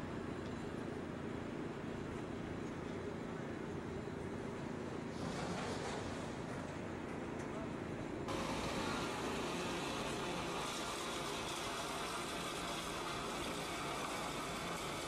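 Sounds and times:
engine running steadily: 0.0 - 15.0.

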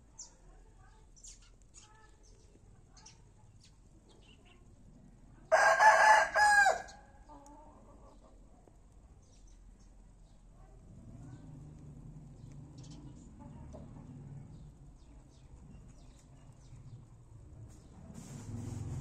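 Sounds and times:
rooster crowing: 5.5 - 7.0.

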